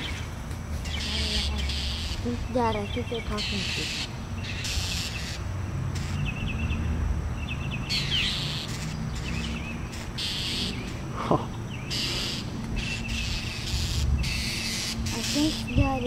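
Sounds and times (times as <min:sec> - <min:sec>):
birds chirping alarm calls: 0:00.0 - 0:16.0.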